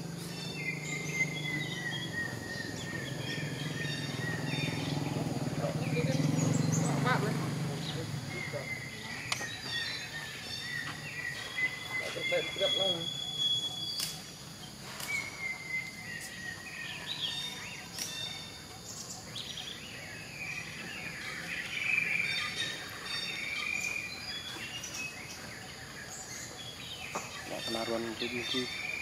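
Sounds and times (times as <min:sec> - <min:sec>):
birds chirping: 0:00.0 - 0:29.0
sharp clicks: 0:13.9 - 0:14.2.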